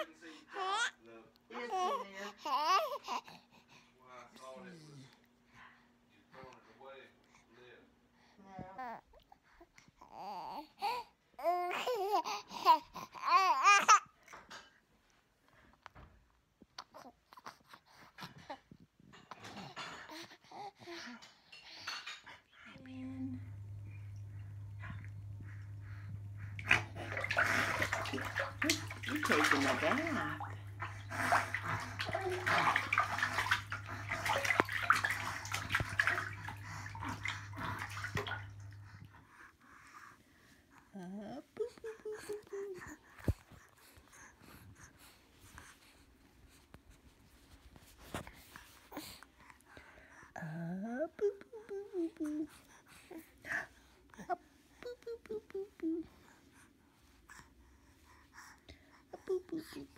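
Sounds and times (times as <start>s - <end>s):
baby cooing and babbling: 1.6s - 3.4s, 8.7s - 14.2s
steady low hum: 22.7s - 39.5s
bathwater splashing and lapping: 23.2s - 39.3s.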